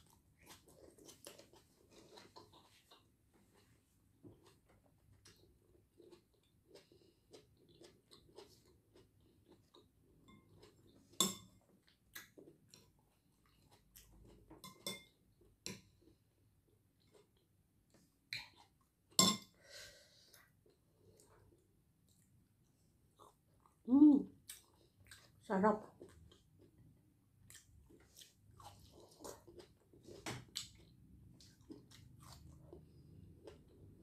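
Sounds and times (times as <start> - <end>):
chewing and mouth sounds: 0.0 - 14.6, 23.0 - 34.0.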